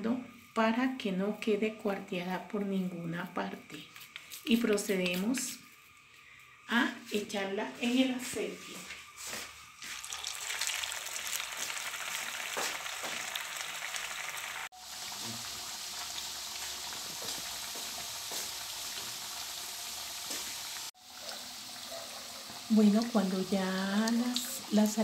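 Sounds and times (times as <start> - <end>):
food sizzling in hot oil: 9.1 - 25.0.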